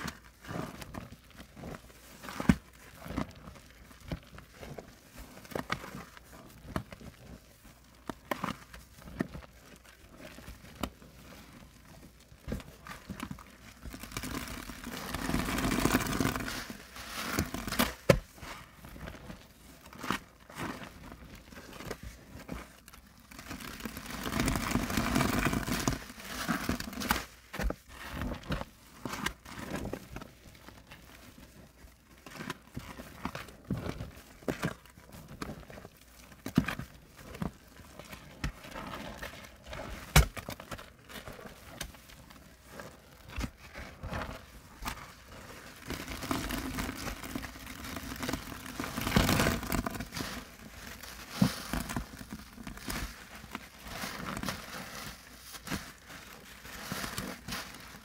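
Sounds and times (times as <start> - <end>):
sponge squelching: 0.0 - 58.0
lather bubbles crackling: 0.2 - 22.1, 22.8 - 27.0, 40.6 - 58.0.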